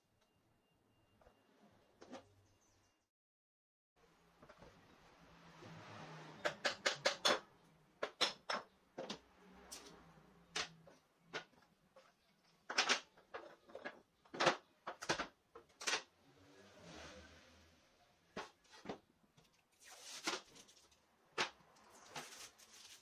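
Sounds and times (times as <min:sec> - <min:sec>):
wooden parts knocking and clattering: 0:10.4 - 0:16.1.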